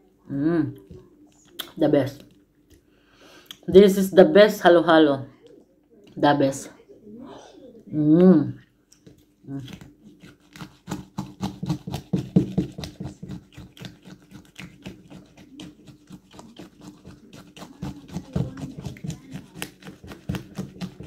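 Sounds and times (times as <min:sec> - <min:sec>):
plastic spoon scraping shaved ice: 0:09.6 - 0:21.0.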